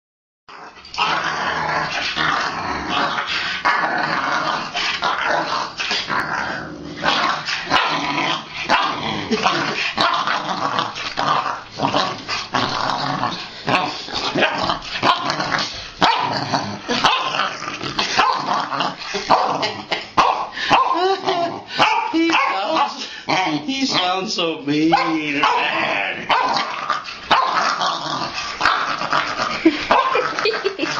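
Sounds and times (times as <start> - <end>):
puppy play-growling: 0.5 - 24.0, 24.9 - 30.9
puppy barking: 16.0 - 16.3, 18.2 - 18.5, 19.3 - 19.6, 20.2 - 21.0, 21.8 - 22.9, 24.9 - 26.7, 27.3 - 27.6, 29.9 - 30.4.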